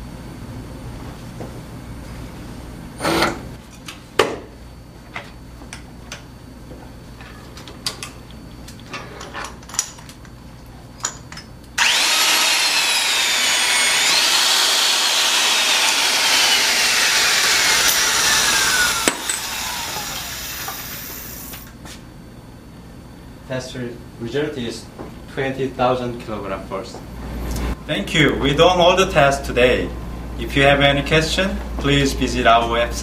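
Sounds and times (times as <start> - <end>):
electric wrench motor whirring: 11.8 - 21.7.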